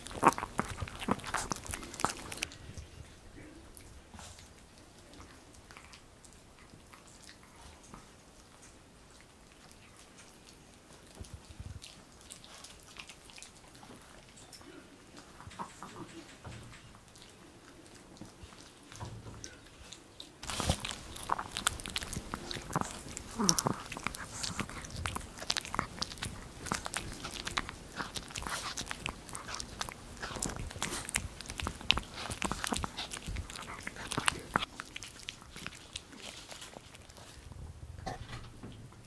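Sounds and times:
dog gnawing chew stick: 0:00.0 - 0:37.5.

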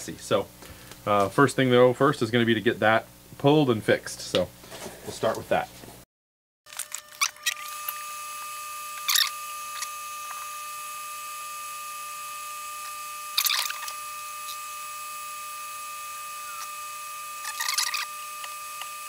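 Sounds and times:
high-pitched electronic whine: 0:06.7 - 0:19.0.

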